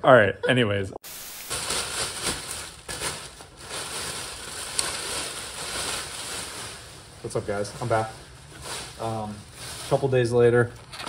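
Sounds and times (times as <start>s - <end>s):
plastic bag rustling: 1.1s - 10.8s.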